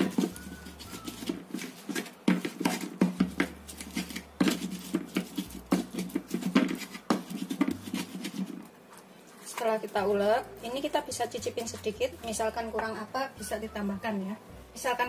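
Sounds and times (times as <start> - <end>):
pestle pounding in mortar: 0.0 - 8.6.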